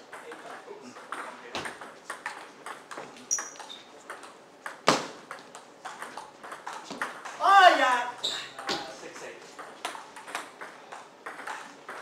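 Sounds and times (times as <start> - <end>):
ping pong ball clicking on paddles: 0.0 - 7.5, 8.6 - 12.0
ball bouncing on table: 0.1 - 7.4, 9.6 - 12.0
brief high squeak: 8.2 - 8.6.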